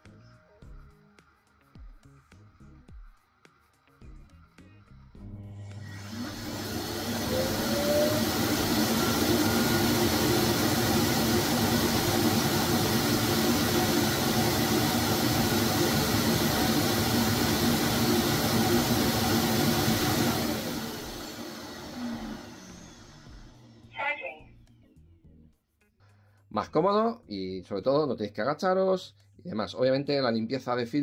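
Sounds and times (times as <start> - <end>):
vacuum suction motor whirring: 5.4 - 23.9.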